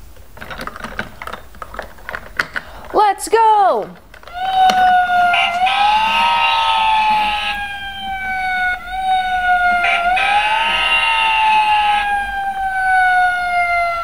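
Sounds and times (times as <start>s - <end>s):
toy siren wailing: 4.2s - 14.0s
rushing noise: 4.3s - 14.0s.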